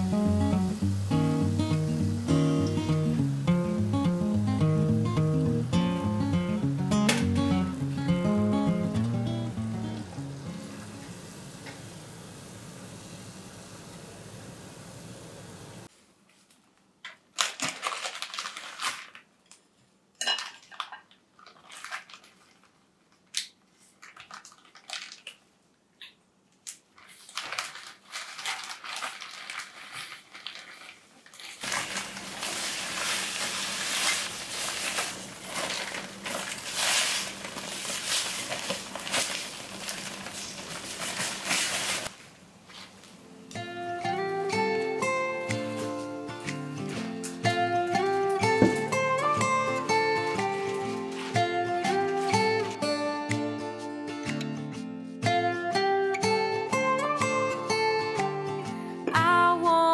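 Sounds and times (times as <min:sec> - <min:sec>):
plastic bag crinkling: 0:17.3 - 0:19.7, 0:20.4 - 0:25.5, 0:26.8 - 0:43.3, 0:45.6 - 0:52.8
bag shaken with sugar rustling: 0:17.5 - 0:19.2, 0:27.0 - 0:42.2, 0:45.6 - 0:52.8.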